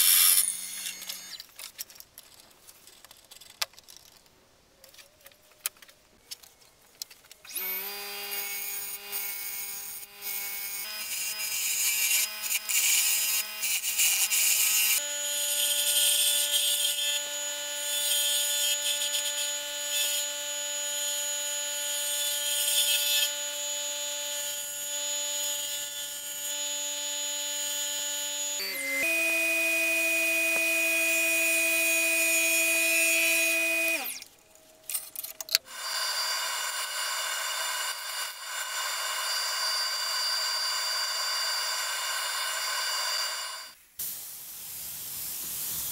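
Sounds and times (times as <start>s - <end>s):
wood lathe motor whine: 23.1s - 34.2s, 35.7s - 43.8s.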